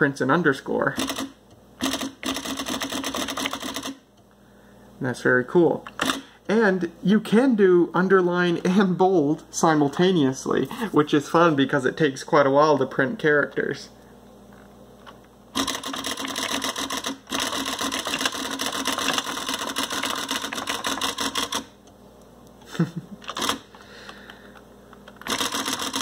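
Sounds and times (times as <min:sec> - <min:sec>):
electronic typewriter printing: 0:00.9 - 0:04.0, 0:05.9 - 0:06.3, 0:15.5 - 0:21.8, 0:23.2 - 0:23.7, 0:25.2 - 0:26.0.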